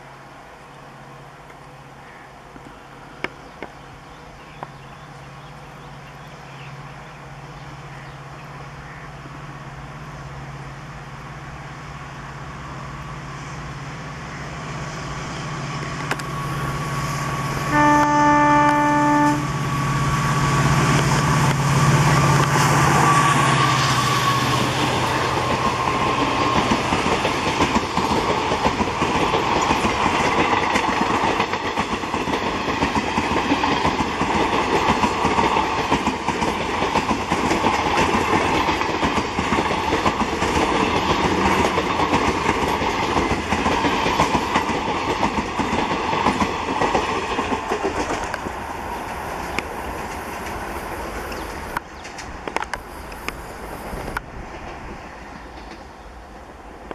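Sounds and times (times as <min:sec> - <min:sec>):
locomotive engine hum: 0:00.0 - 0:56.9
train wheels clicking over rail joints: 0:15.7 - 0:17.7, 0:19.6 - 0:56.0
locomotive horn blast: 0:17.6 - 0:19.6.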